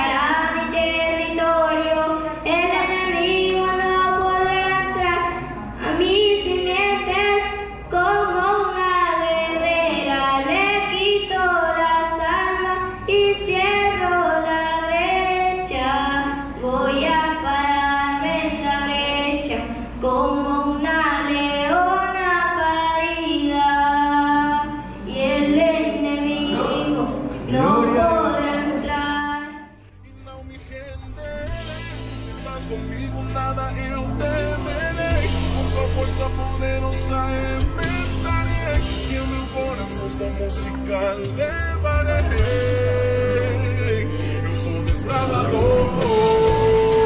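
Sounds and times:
girl singing into microphone: 0.0s - 29.9s.

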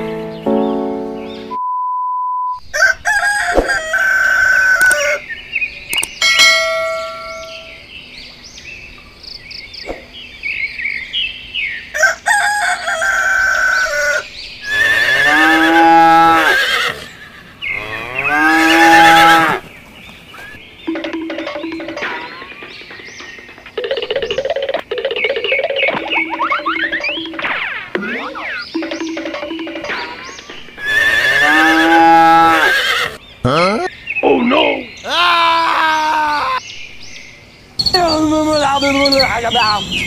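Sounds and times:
clicks: 5.9s - 6.2s
farm animal calls: 13.2s - 19.7s, 28.2s - 35.6s
test-tone beep: 20.9s - 22.4s, 28.2s - 30.2s.

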